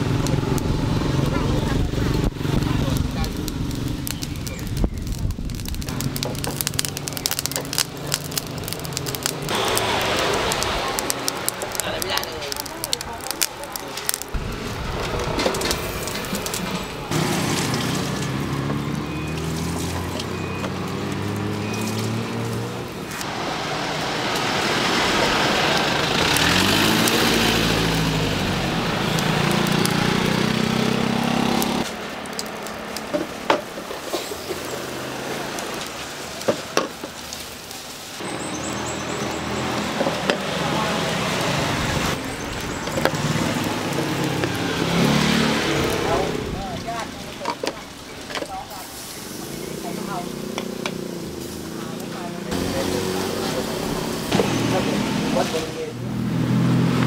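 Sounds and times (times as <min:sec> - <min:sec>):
vehicle engine running: 0:00.0 - 0:33.2
fire crackling and popping: 0:00.0 - 0:57.0
street noise: 0:00.0 - 0:57.0.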